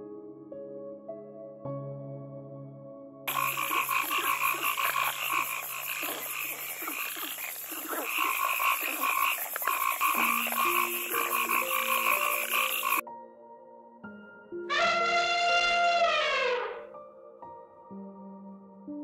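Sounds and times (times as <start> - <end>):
frogs croaking: 3.3 - 13.0.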